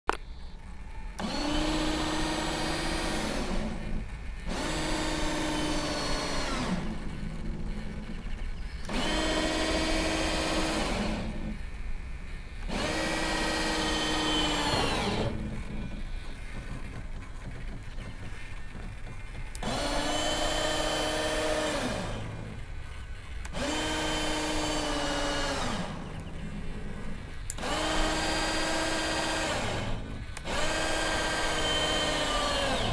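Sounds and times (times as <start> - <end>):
electric motor whine: 0.4 - 17.0, 18.4 - 32.9.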